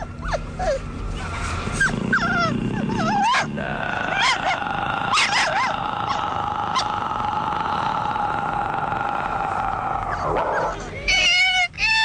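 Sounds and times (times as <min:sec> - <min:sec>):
dog whining and yelping: 0:00.0 - 0:03.5
steady high drone: 0:00.0 - 0:11.1.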